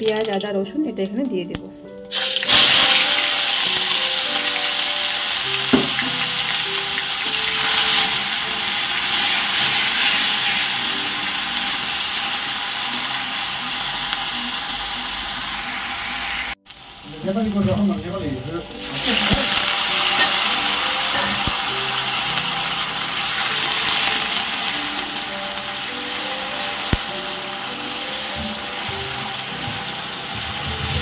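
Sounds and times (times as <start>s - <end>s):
faint background music: 0.0s - 31.0s
paste sizzling in hot oil: 2.1s - 31.0s
spatula tapping pan: 5.7s - 6.2s.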